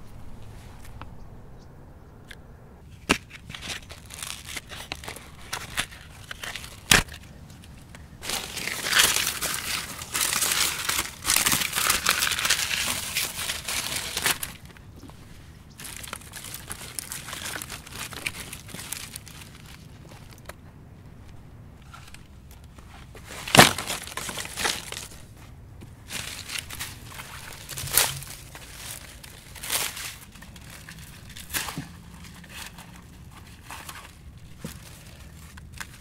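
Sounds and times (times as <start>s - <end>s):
sticks and brush crunching: 2.2s - 36.0s
sticks snapping: 3.0s - 7.6s.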